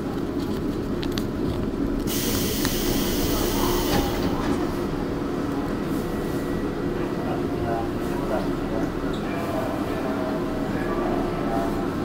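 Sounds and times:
subway train rumble: 0:00.0 - 0:12.0.

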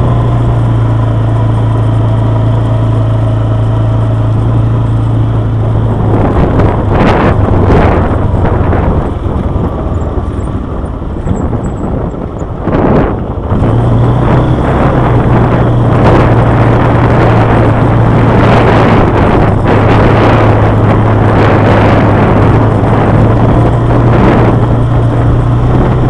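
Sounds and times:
quad bike engine running: 0:00.0 - 0:26.0
wind noise on microphone: 0:00.0 - 0:26.0.

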